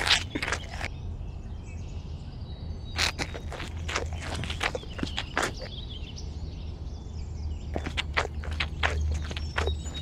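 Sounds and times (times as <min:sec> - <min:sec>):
leaves rustling and crunching: 0:00.0 - 0:00.9, 0:03.0 - 0:05.7, 0:07.8 - 0:10.0.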